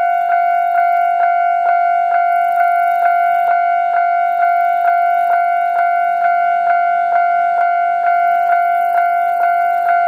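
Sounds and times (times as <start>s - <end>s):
level crossing warning bell: 0.0s - 10.0s.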